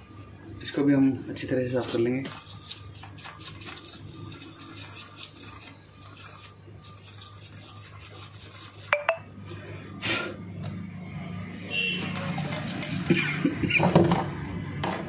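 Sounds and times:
paintbrush scrubbing circuit board: 0:01.3 - 0:09.0, 0:11.8 - 0:13.5.

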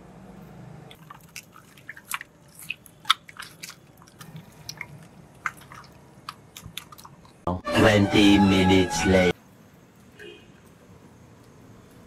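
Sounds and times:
hand squishing chicken in marinade: 0:01.0 - 0:07.4.

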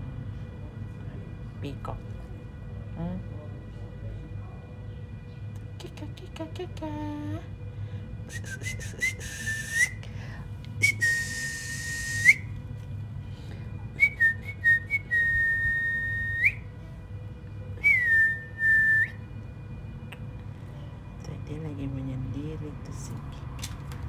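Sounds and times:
person whistling: 0:08.3 - 0:10.0, 0:10.8 - 0:12.5, 0:14.0 - 0:16.6, 0:17.8 - 0:19.2.

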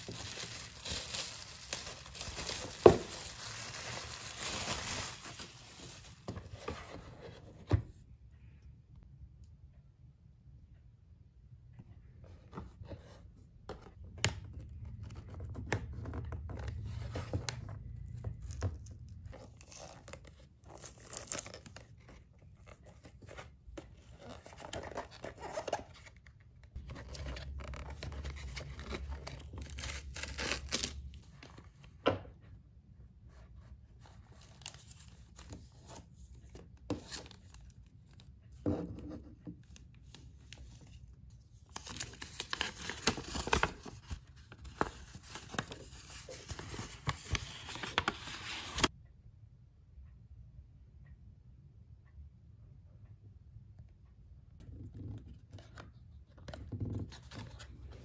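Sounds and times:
cardboard ripping: 0:00.0 - 0:05.8
stiff plastic crackling: 0:00.0 - 0:06.3
paper rustling: 0:00.0 - 0:07.7, 0:41.7 - 0:48.9.

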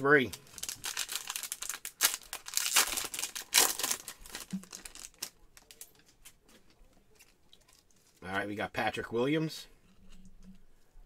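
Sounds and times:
card pack wrapper crinkling and tearing: 0:00.0 - 0:08.3.

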